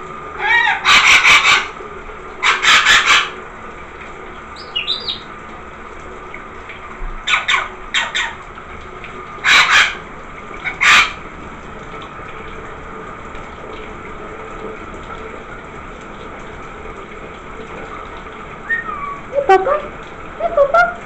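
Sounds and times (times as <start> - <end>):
shower running: 0.0 - 21.0.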